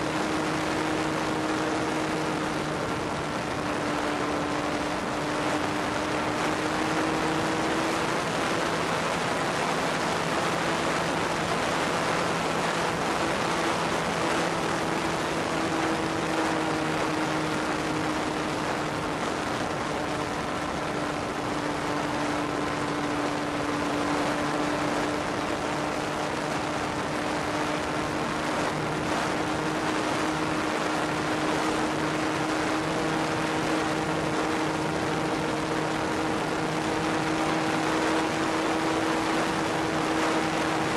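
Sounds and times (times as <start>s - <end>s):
model plane motor droning: 0.0s - 40.9s.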